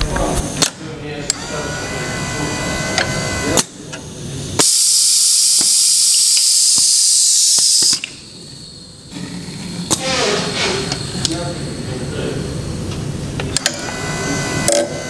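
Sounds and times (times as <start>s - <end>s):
compressed air hissing: 4.1s - 13.4s
sharp pneumatic click: 4.6s - 8.2s, 9.9s - 11.4s.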